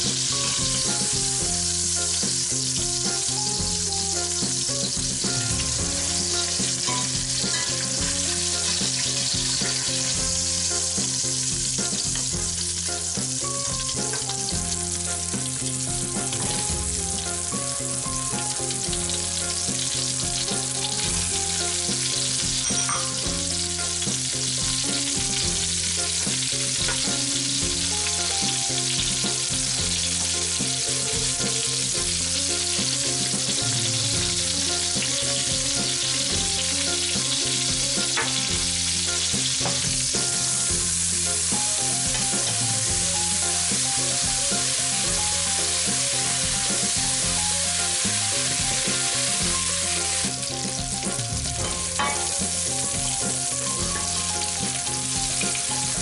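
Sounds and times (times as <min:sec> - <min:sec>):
vegetables sizzling in pot: 0:00.0 - 0:56.0
spoon stirring: 0:22.6 - 0:23.3.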